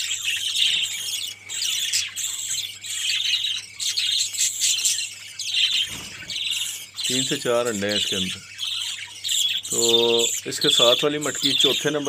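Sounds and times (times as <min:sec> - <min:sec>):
budgerigars chattering and chirping: 0:00.0 - 0:12.0.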